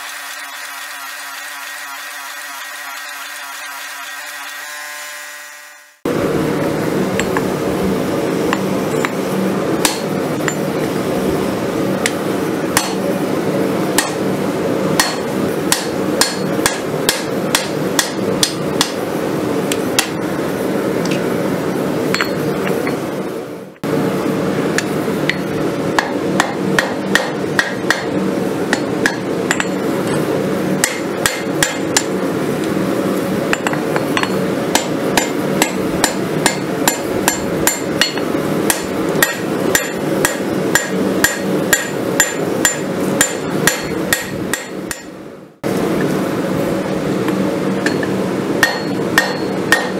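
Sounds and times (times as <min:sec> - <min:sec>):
steady hum: 0:05.8 - 0:49.9
hammer striking steel on anvil: 0:09.8 - 0:10.7, 0:12.0 - 0:13.0, 0:14.0 - 0:14.2, 0:15.0 - 0:19.0, 0:20.0 - 0:20.2, 0:22.1 - 0:22.5, 0:24.8 - 0:29.8, 0:30.8 - 0:32.1, 0:33.5 - 0:45.2, 0:47.8 - 0:49.9.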